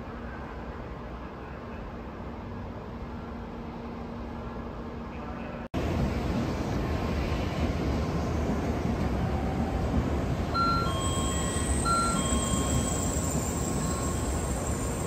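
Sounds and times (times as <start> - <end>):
train running rumble: 5.8 - 15.0
short chime tones: 10.6 - 14.3
faint high whine: 10.6 - 15.0.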